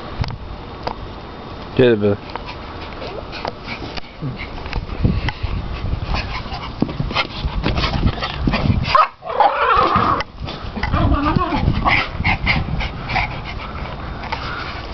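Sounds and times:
small dogs whining: 10.8 - 12.4.

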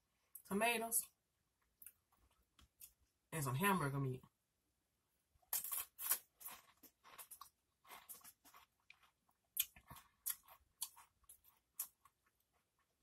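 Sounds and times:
chewing crisp chips: 5.5 - 13.0.

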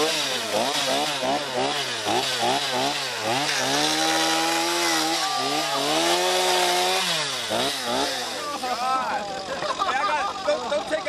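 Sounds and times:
chainsaw revving and cutting wood: 0.0 - 11.0.

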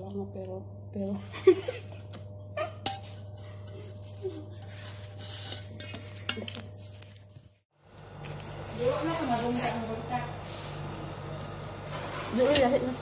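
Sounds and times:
steady low hum: 0.0 - 13.0
metal pans clinking and scraping: 2.8 - 3.2.

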